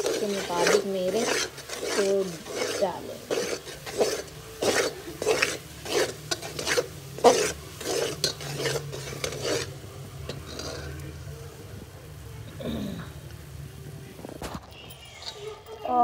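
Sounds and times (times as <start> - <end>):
metal ladle scraping steel pot: 0.0 - 11.0.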